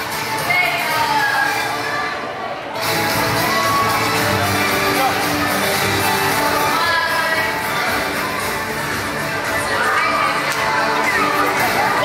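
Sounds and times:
song with singing: 0:03.2 - 0:12.0.

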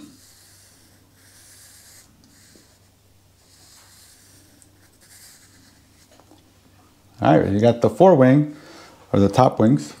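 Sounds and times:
pencil scratching on paper: 0:00.0 - 0:06.2
low steady hum: 0:00.0 - 0:10.0.

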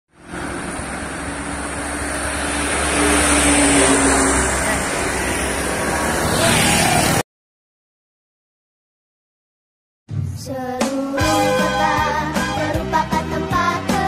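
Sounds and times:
motorcycles passing: 0:00.1 - 0:07.2
trucks approaching: 0:00.1 - 0:07.2.

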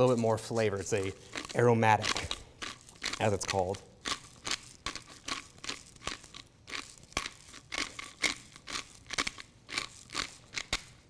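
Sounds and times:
pepper mill grinding: 0:00.0 - 0:11.0.

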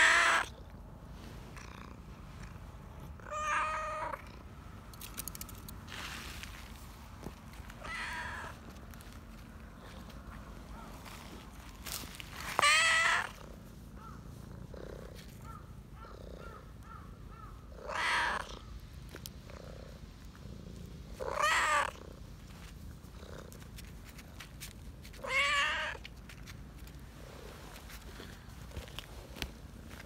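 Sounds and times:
cat meowing: 0:00.0 - 0:00.5, 0:03.2 - 0:04.2, 0:07.8 - 0:08.6, 0:12.6 - 0:13.4, 0:17.8 - 0:18.6, 0:21.2 - 0:22.0, 0:25.2 - 0:26.0.

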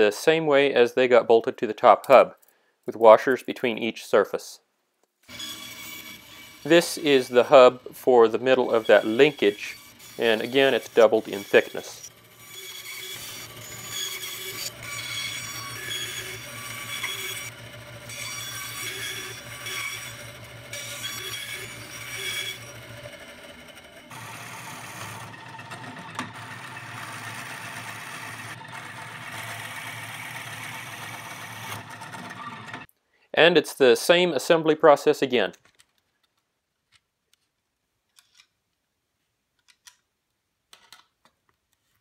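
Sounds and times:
scroll saw cutting wood: 0:05.2 - 0:32.9
drill press boring wood: 0:05.3 - 0:32.9.

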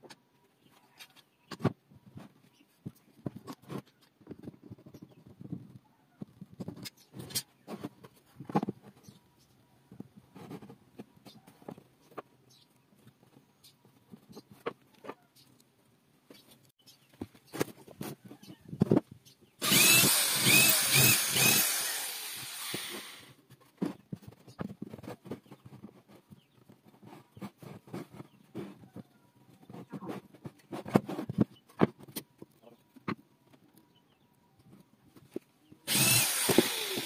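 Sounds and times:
power tool running: 0:19.6 - 0:23.4, 0:35.9 - 0:37.0.

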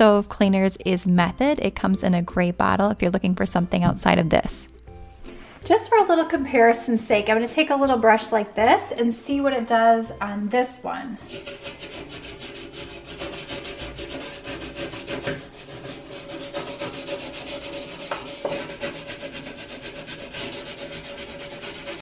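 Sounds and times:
brush scrubbing stove top: 0:11.2 - 0:22.0.

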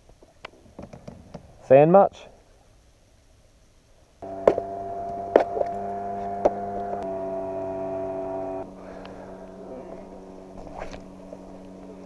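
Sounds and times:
steady mechanical hum: 0:04.2 - 0:12.0.

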